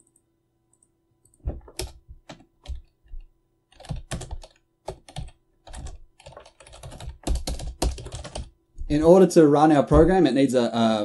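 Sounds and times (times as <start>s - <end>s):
computer keyboard typing: 0.0s - 8.5s.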